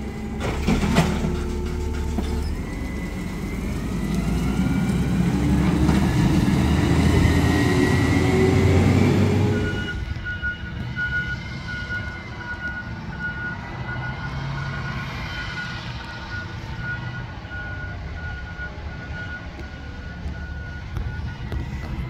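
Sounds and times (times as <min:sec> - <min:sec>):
distant garbage truck engine hum: 0:00.0 - 0:22.0
high beeping alarm: 0:09.4 - 0:22.0.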